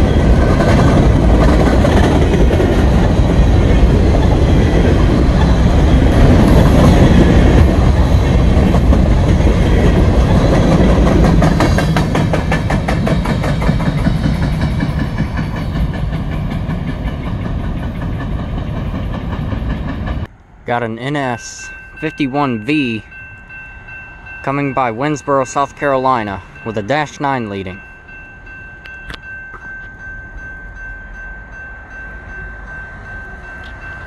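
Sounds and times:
freight train rumbling past: 0.0s - 34.0s
wheels clicking over rail joints: 0.2s - 20.3s.

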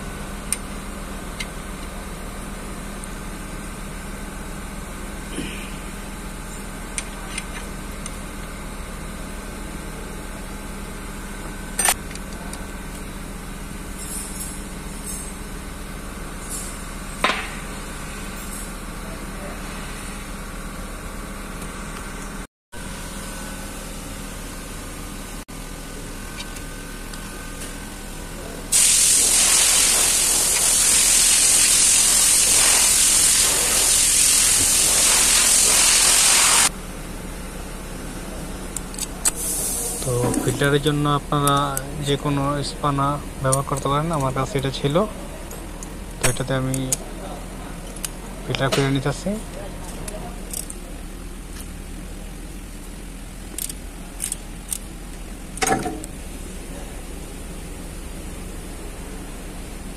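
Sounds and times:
shop hum: 0.0s - 59.9s
loud steady hiss: 28.8s - 36.7s
wrench clicks: 50.0s - 50.8s, 53.5s - 54.9s.

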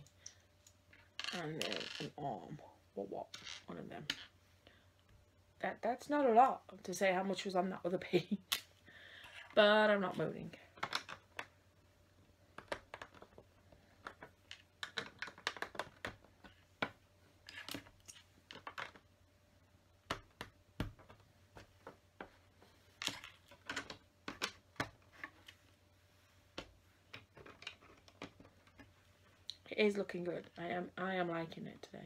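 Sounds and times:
plastic bricks clicking and snapping: 12.5s - 13.4s, 14.0s - 19.0s.

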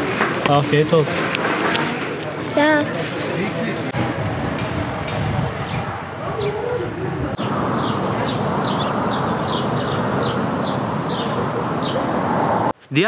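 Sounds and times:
steady rushing wind noise: 3.8s - 12.8s
small bird chirping: 7.4s - 12.1s.

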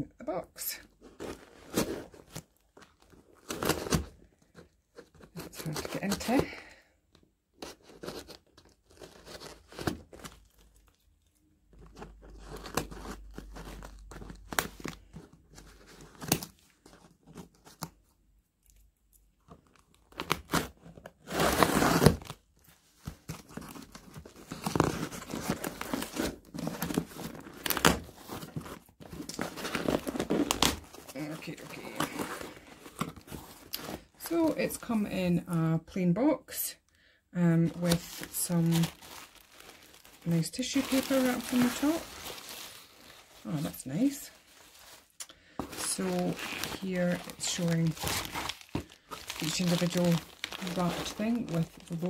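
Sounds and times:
packing tape tearing: 20.1s - 22.4s, 23.5s - 34.0s, 44.5s - 51.9s.

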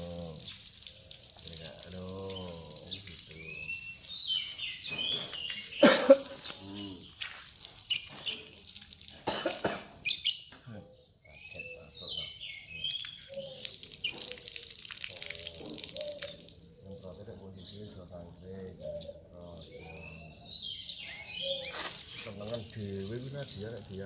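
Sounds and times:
water spraying from hose: 0.0s - 10.3s, 11.4s - 20.6s, 21.2s - 24.0s
lovebirds chirping: 0.3s - 8.8s, 10.0s - 24.0s.

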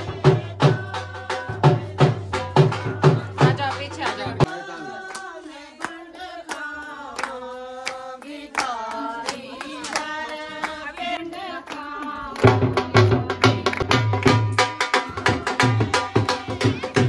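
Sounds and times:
drum beating: 0.0s - 4.6s, 12.1s - 17.0s
women singing together: 0.0s - 17.0s
hand claps: 4.4s - 15.4s.

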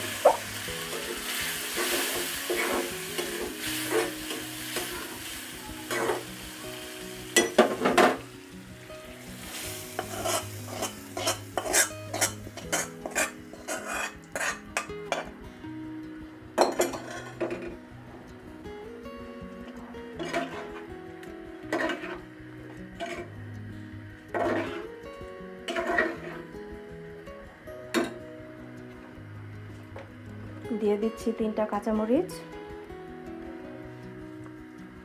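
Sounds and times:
hot oil sizzling in a wok: 0.0s - 15.4s, 20.2s - 27.1s
metal spoon scraping a pan: 0.2s - 5.2s, 5.9s - 6.3s, 9.4s - 15.3s, 16.7s - 17.8s, 20.2s - 20.9s, 21.7s - 22.3s, 23.0s - 23.3s, 24.3s - 24.9s, 25.7s - 26.5s.

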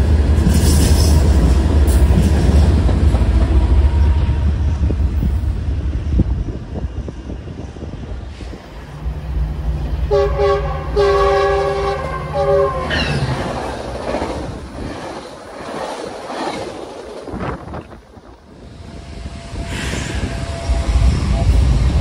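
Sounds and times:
train wheel clatter: 0.0s - 4.1s, 11.4s - 18.3s
train rumbling past: 0.0s - 22.0s
locomotive horn blasts: 10.0s - 13.3s.

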